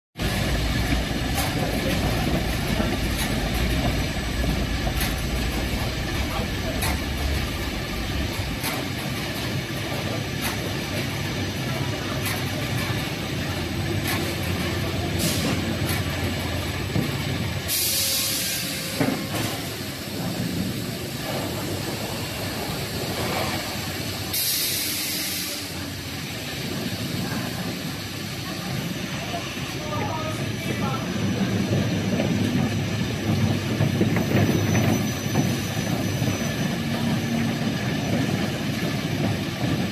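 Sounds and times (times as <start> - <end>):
factory machinery running: 0.2 - 39.9
compressed air hiss: 17.7 - 19.0, 22.8 - 25.9.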